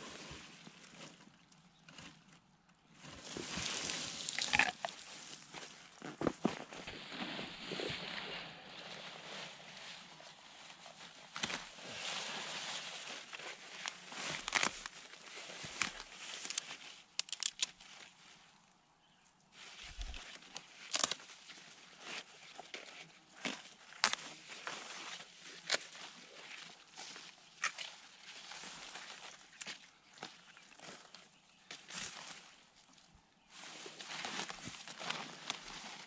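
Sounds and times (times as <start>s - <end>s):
tall grass rustling: 2.9s - 18.5s
plant stems snapping: 14.3s - 14.9s, 17.2s - 17.8s, 20.9s - 21.2s.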